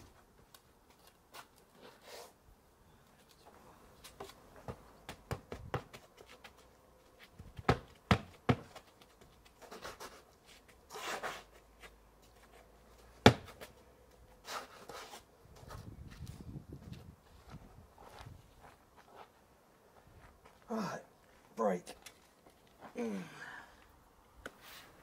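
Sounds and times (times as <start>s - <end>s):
spade scraping in sand: 10.9s - 11.6s.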